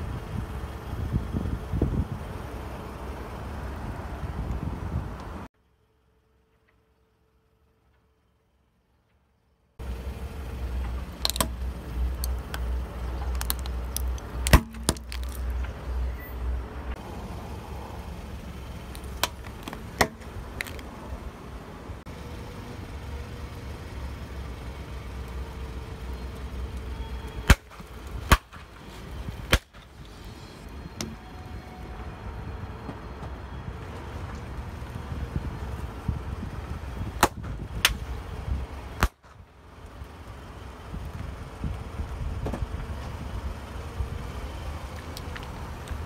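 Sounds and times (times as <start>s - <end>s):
car low rumble: 0.0s - 46.0s
plastic cracking under tyre: 11.2s - 15.7s, 18.9s - 20.9s.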